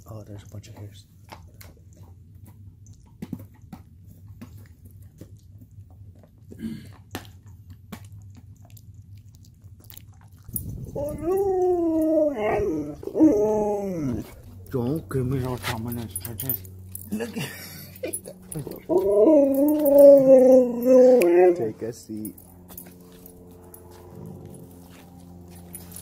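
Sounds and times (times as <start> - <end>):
dog chewing: 0.1 - 17.3, 17.9 - 26.0
dog howling: 10.6 - 15.1, 18.5 - 22.4.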